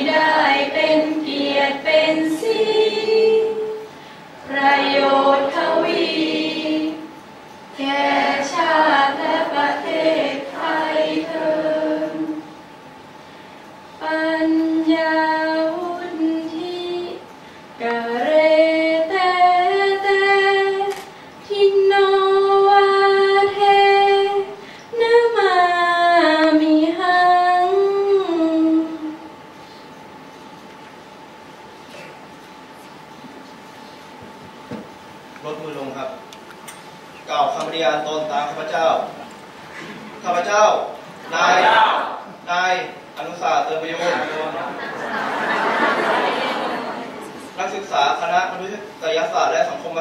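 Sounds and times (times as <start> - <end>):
group singing unaccompanied: 0.0 - 3.8, 4.4 - 12.5, 41.2 - 42.4, 44.0 - 47.5.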